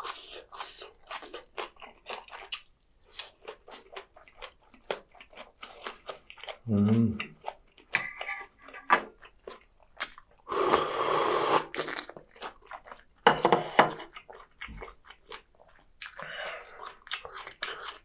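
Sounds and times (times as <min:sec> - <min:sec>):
wet chewing: 0:00.0 - 0:10.9, 0:11.5 - 0:13.3, 0:13.9 - 0:18.0
slurping broth from spoon: 0:10.5 - 0:12.0.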